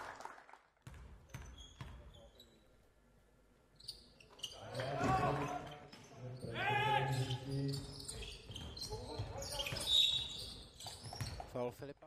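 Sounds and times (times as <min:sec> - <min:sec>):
basketball bouncing on hardwood: 0:00.8 - 0:02.0.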